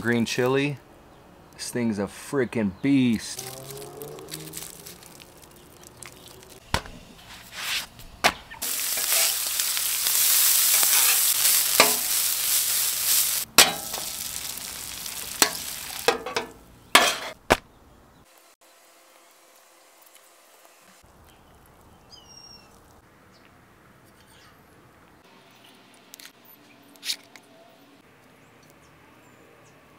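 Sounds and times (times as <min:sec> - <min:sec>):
hash browns sizzling on griddle: 0:03.6 - 0:07.8, 0:08.6 - 0:17.4
metal spatula scraping griddle: 0:08.8 - 0:12.3, 0:15.4 - 0:17.4.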